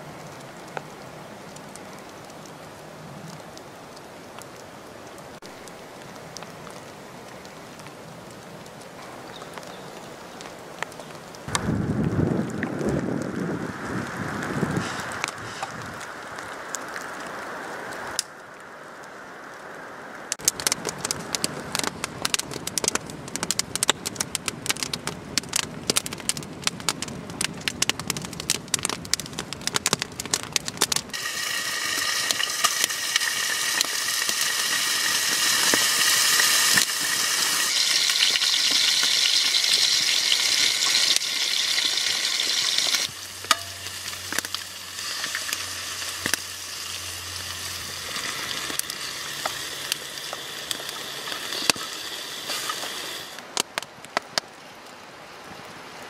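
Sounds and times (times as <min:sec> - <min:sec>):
sharp crackles: 0:00.0 - 0:55.8
food sizzling in pan: 0:31.1 - 0:53.4.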